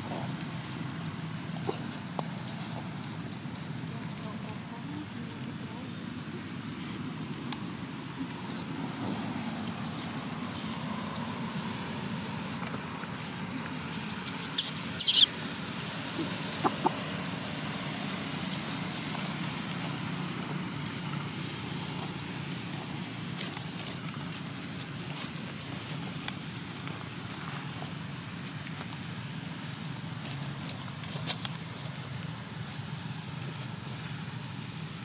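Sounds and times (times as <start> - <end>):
low outdoor rumble: 0.0 - 35.0
animal chirps: 14.5 - 15.4, 16.0 - 17.1
animal squeals: 14.6 - 15.4.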